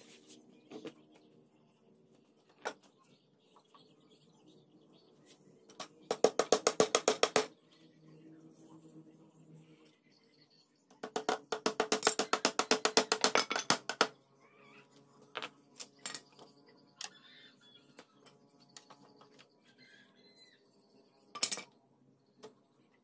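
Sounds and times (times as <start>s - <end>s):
hammer tapping a nail into wood: 6.1s - 7.5s, 11.0s - 14.1s.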